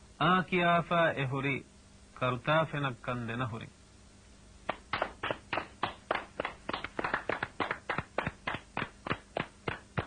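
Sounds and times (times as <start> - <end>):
people clapping in rhythm: 4.6 - 10.0.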